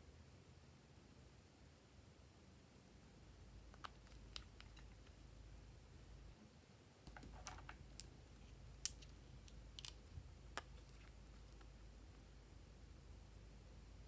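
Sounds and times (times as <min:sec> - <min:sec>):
small bottles and caps clicking: 0:08.8 - 0:11.7.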